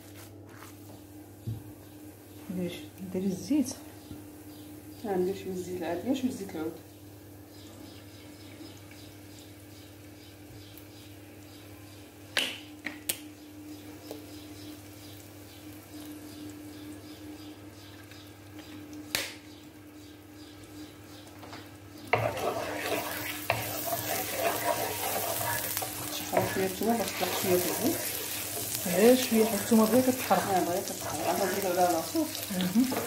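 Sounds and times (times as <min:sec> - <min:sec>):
garlic sizzling in oil: 0:22.0 - 0:33.0
wooden spoon stirring: 0:22.1 - 0:33.0.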